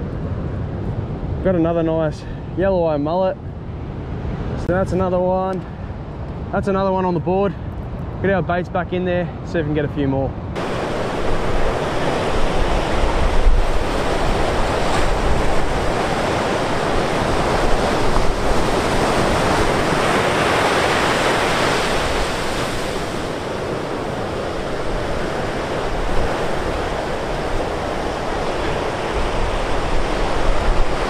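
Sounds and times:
wind rumbling on microphone: 10.3 - 31.0
ocean surf breaking on beach: 10.6 - 31.0.

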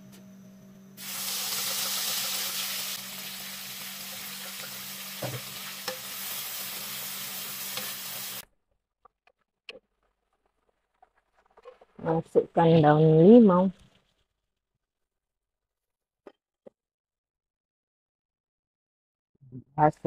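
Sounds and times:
chili paste sizzling in hot oil: 1.0 - 8.4.

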